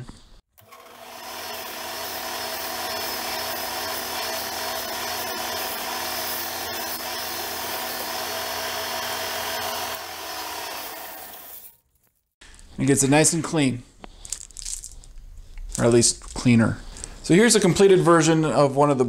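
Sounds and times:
belt sander running: 0.6 - 11.7
rubber stick rubbing sanding belt: 1.4 - 11.7.

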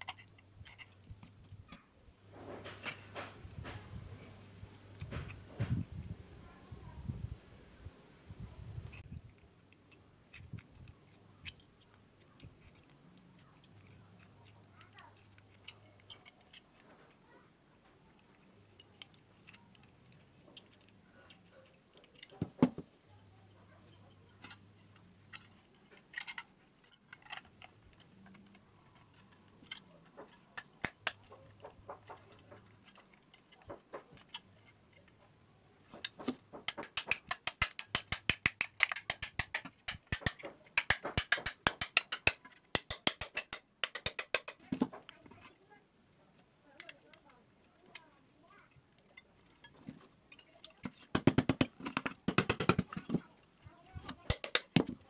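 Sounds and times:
pliers clicking on sheet metal: 35.9 - 45.2, 54.1 - 55.0
sharp metallic taps: 36.2 - 45.0.

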